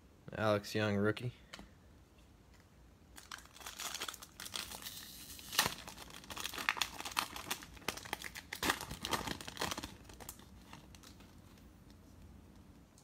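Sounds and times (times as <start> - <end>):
foil wrapper tearing and crinkling: 3.2 - 11.3.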